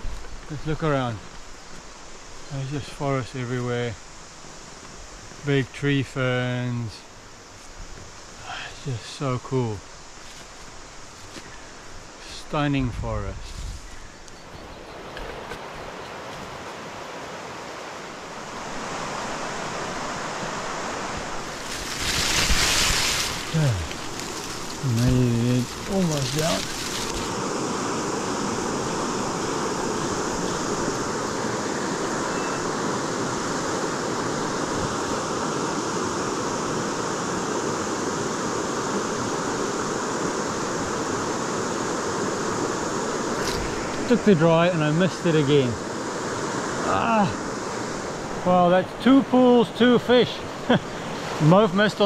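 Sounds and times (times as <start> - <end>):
river water rushing: 14.7 - 52.0.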